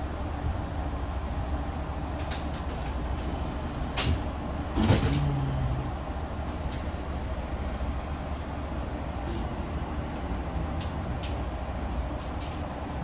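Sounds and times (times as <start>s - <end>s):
train low rumble: 0.0s - 13.0s.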